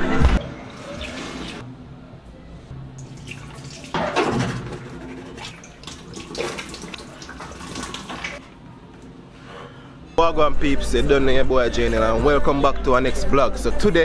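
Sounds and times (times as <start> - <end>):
water running into sink: 3.0 - 8.4.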